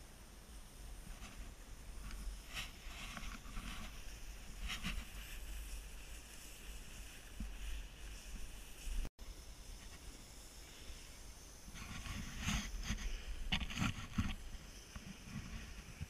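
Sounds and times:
snowboard sliding over snow: 0.4 - 16.0
board edge scraping snow: 1.0 - 9.1, 11.7 - 16.0.

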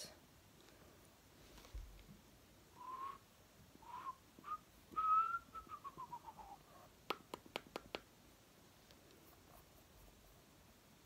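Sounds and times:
person whistling: 2.8 - 3.2, 3.8 - 6.6.

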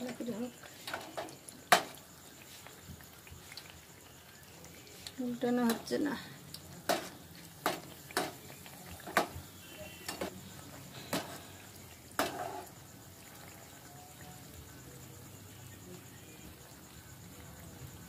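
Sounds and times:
faint frying sizzle: 0.0 - 18.0
metal spoon knocking frying pan: 6.8 - 8.4, 9.0 - 9.4, 11.1 - 11.4, 12.2 - 12.7.

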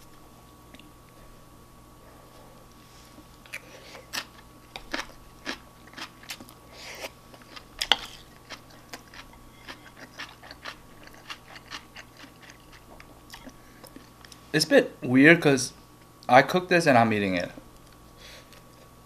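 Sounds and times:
person chewing and smacking: 3.4 - 14.4.

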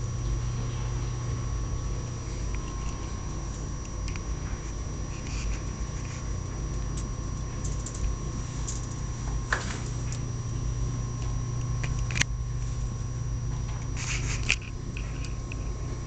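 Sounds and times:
steady low hum: 0.0 - 16.0
rats scurrying in wire cage: 2.2 - 10.3, 13.6 - 16.0.

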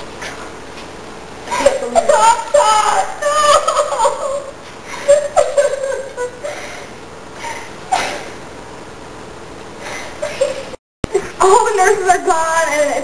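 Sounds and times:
girl sobbing: 1.5 - 8.3.

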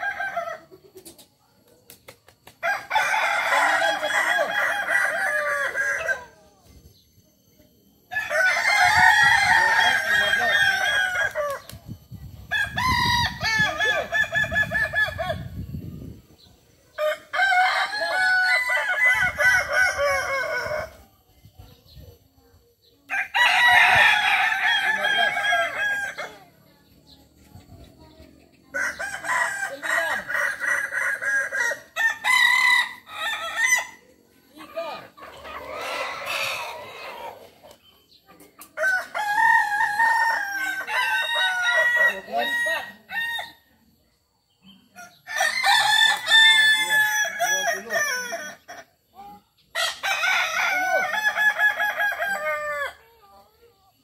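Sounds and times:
roosters crowing: 0.0 - 0.9, 2.4 - 6.5, 8.1 - 11.8, 12.4 - 16.2, 16.9 - 21.1, 23.1 - 26.6, 28.7 - 37.9, 38.7 - 43.8, 44.9 - 53.1.

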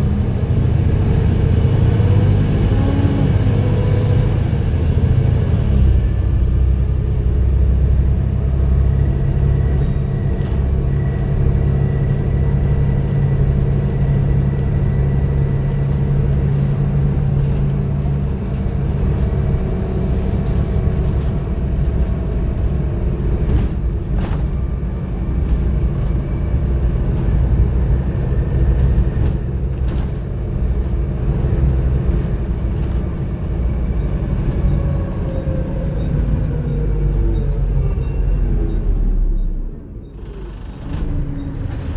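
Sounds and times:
bus diesel engine drone: 0.0 - 41.9
bus body knocks and rattles: 16.2 - 33.6.

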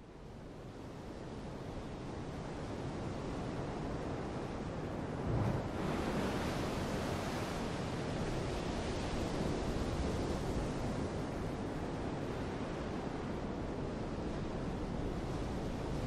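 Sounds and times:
open sea: 0.0 - 16.0
wind: 0.0 - 16.0
wind buffeting microphone: 4.6 - 11.1.

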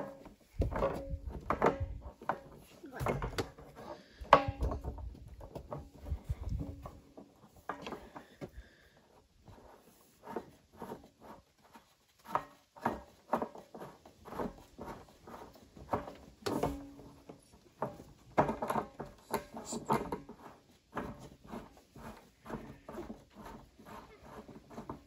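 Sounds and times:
plastic clicking and scraping: 10.2 - 25.0.

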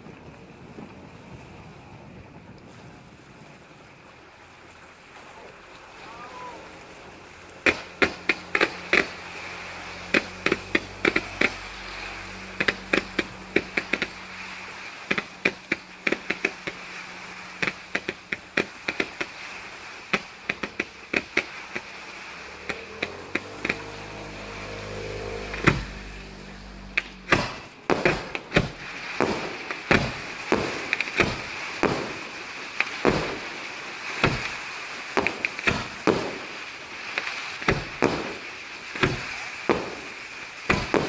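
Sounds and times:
fireworks hiss: 7.5 - 41.0
fireworks cracks and bangs: 9.8 - 26.3, 26.9 - 41.0.

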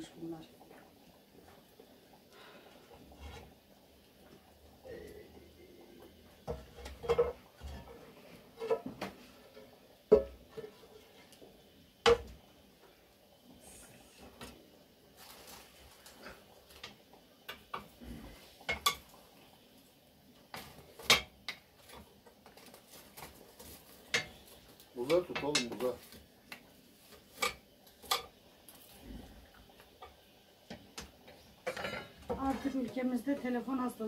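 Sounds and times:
dishes and cutlery clinking: 31.6 - 32.6.

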